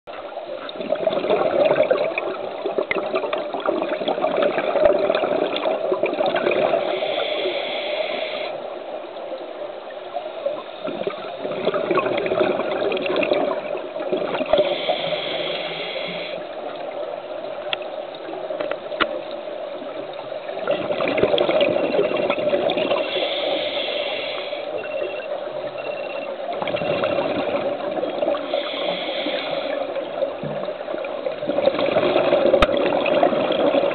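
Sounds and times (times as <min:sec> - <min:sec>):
hissing regulator inhale: 0:06.8 - 0:08.6, 0:14.6 - 0:16.6, 0:22.9 - 0:24.8, 0:28.4 - 0:30.0
bubbling exhale: 0:26.7 - 0:30.7.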